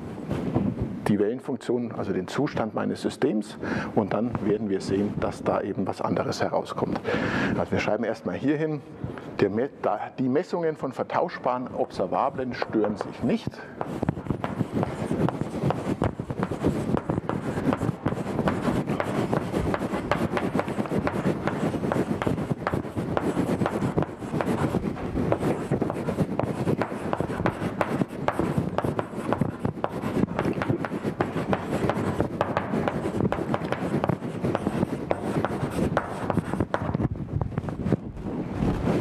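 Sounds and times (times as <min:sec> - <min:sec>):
chalk scratching on blackboard: 0:12.0 - 0:37.0.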